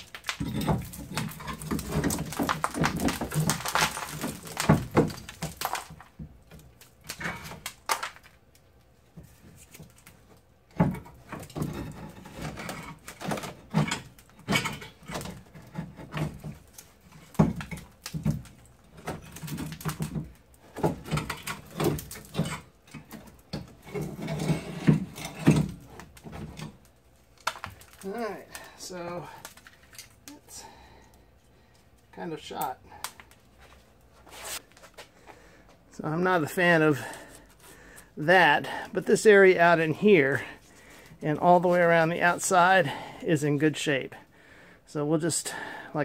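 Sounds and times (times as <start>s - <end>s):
metal knocks clanks and scrapes: 10.8s - 16.6s, 20.7s - 26.8s.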